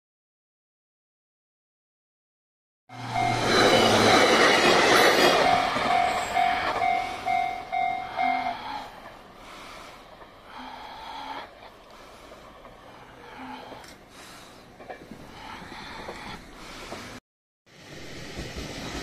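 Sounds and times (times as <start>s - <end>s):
level crossing warning bell: 2.9s - 9.2s
electric train passing: 2.9s - 19.0s.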